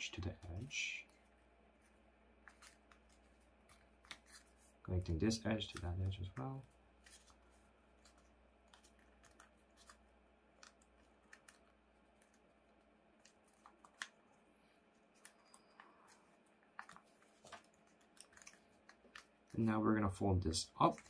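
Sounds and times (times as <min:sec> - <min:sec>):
paper being folded: 0:00.0 - 0:19.8, 0:20.5 - 0:21.0.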